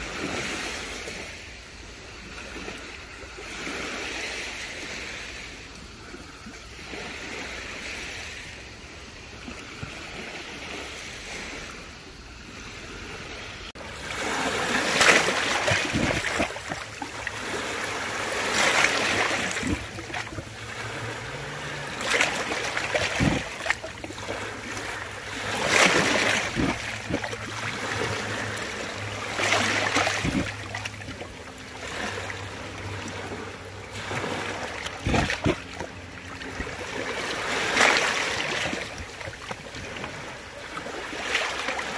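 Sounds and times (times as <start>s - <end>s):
sea waves breaking: 0.0s - 41.9s.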